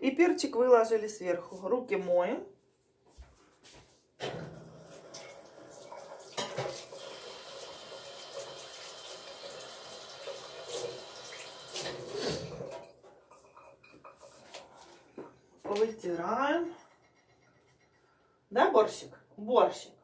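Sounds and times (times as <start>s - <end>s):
kitchen tap running: 4.3s - 14.3s.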